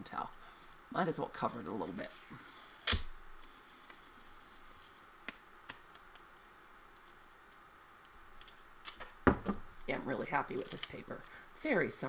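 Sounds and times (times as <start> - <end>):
handling masking tape: 1.4 - 9.2, 9.8 - 11.3.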